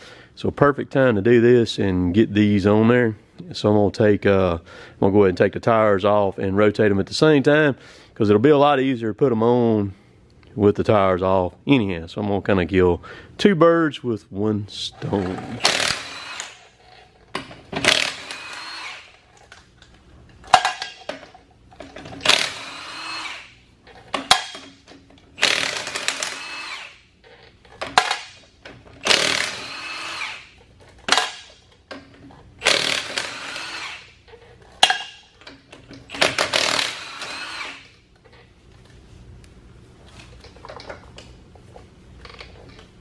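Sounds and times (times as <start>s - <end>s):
impact wrench hammering: 15.4s - 16.6s, 17.4s - 19.1s, 25.4s - 27.0s, 27.8s - 28.4s, 29.0s - 31.6s, 32.6s - 34.1s, 34.8s - 35.3s, 36.1s - 37.9s.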